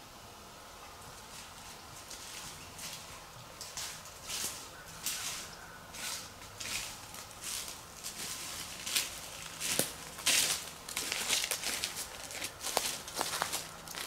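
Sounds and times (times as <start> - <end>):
footsteps in dry leaves: 1.2 - 14.0.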